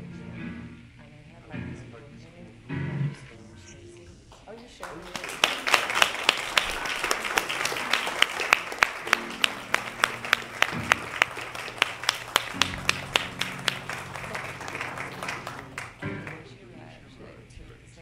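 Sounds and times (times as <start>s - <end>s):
audience applauding: 4.3s - 16.5s
sharp close claps: 4.8s - 16.4s
low held musical notes: 7.2s - 17.4s.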